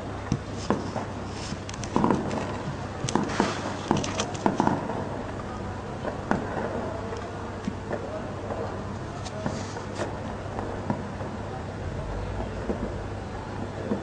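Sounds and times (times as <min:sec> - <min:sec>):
heavy gunfire: 0:03.1 - 0:05.1.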